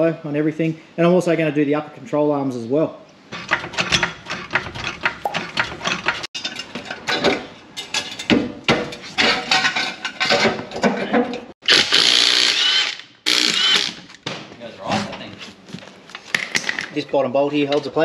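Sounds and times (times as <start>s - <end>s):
metal tools clinking and knocking: 3.5s - 11.5s.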